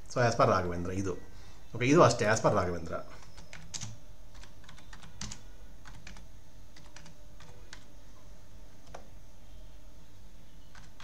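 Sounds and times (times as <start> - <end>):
keyboard typing: 3.0 - 7.9, 8.8 - 9.1, 10.7 - 11.0.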